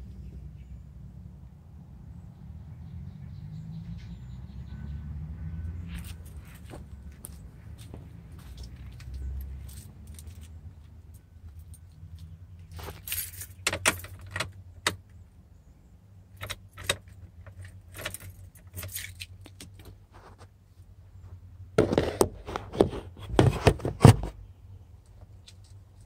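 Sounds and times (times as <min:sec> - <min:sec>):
keys jangling: 0:12.7 - 0:14.6, 0:16.4 - 0:19.8.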